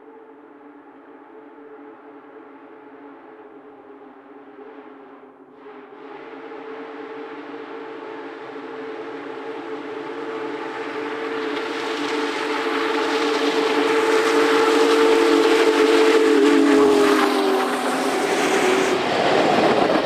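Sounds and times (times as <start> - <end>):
steam whistle chord: 5.6 - 19.0
train rushing noise: 5.6 - 20.0.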